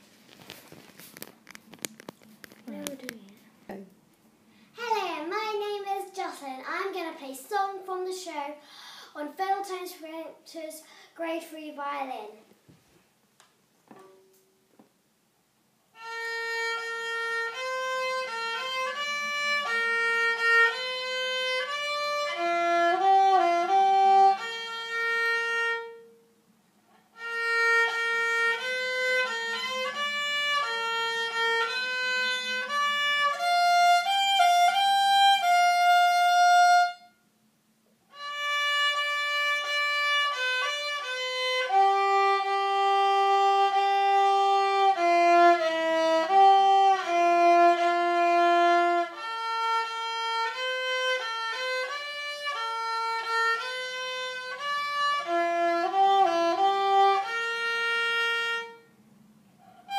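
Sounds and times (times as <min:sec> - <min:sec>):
solo violin melody: 0:15.9 - 0:26.2, 0:27.1 - 0:37.2, 0:38.1 - 0:58.9.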